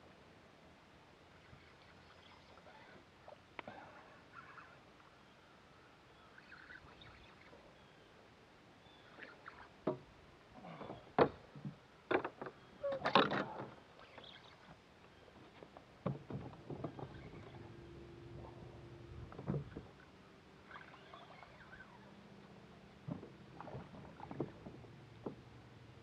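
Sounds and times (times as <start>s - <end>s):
knocks and taps on boat deck: 16.0s - 17.2s, 24.3s - 25.4s.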